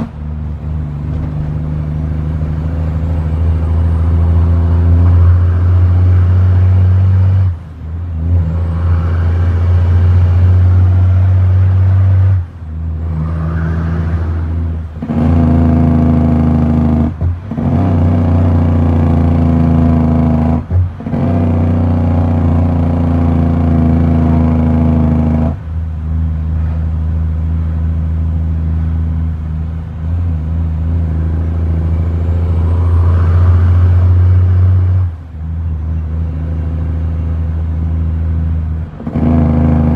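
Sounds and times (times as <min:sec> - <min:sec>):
truck diesel engine pulling: 0:00.0 - 0:39.9.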